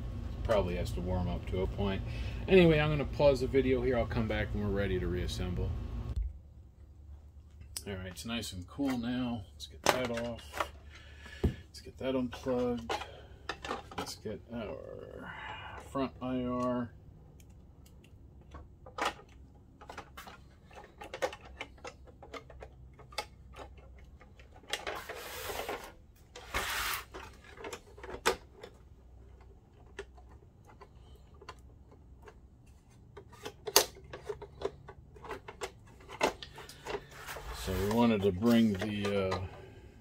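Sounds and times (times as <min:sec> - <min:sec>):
plastic parts clicking and knocking: 0:09.8 - 0:14.7, 0:15.8 - 0:39.7
short scraping sounds: 0:25.0 - 0:27.3, 0:36.5 - 0:38.8.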